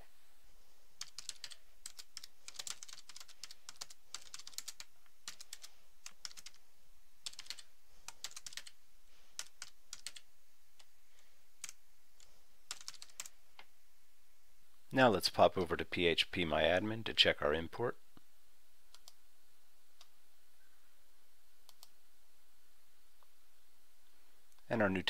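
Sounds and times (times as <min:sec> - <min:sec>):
typing on computer keyboard: 0:01.0 - 0:06.6, 0:07.2 - 0:08.8, 0:09.4 - 0:10.3, 0:12.7 - 0:13.3.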